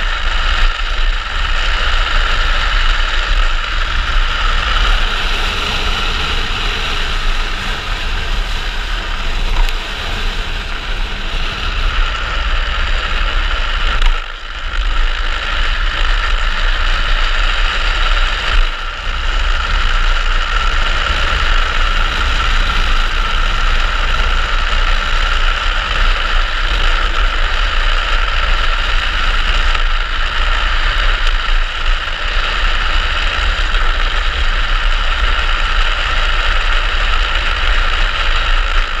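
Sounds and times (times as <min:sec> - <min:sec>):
wheels rolling on asphalt: 0:00.0 - 0:39.0
wind buffeting camera: 0:00.0 - 0:39.0.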